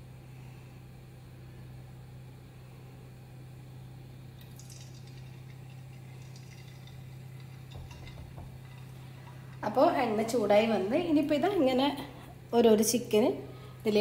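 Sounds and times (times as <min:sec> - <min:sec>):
steady low hum: 0:00.0 - 0:14.0
batter sizzling in hot oil: 0:04.4 - 0:09.9.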